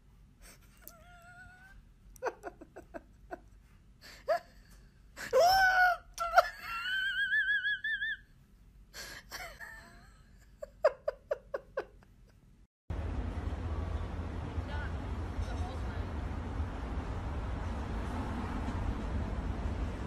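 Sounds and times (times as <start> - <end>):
person laughing hysterically: 0.5 - 3.5, 4.1 - 8.3, 9.0 - 12.4.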